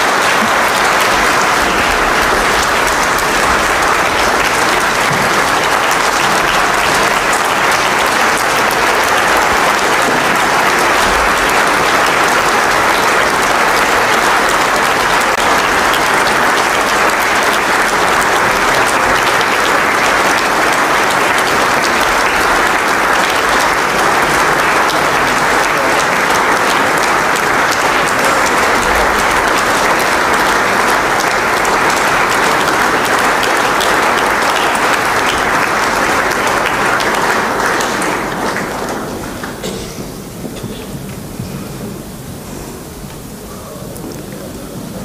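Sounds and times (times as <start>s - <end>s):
large audience applauding: 0.0s - 45.0s.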